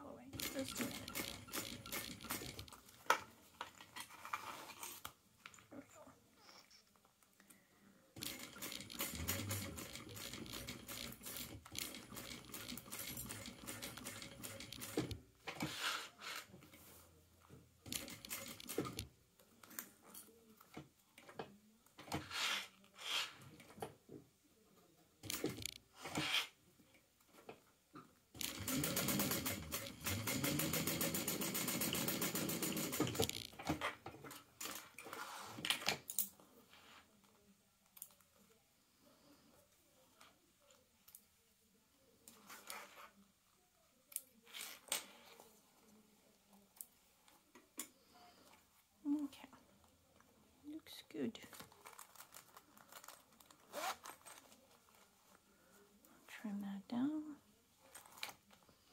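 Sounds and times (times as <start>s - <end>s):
sewing machine stitching: 0.3s - 2.8s, 8.2s - 16.4s, 17.8s - 19.1s, 25.2s - 26.5s, 28.4s - 35.6s.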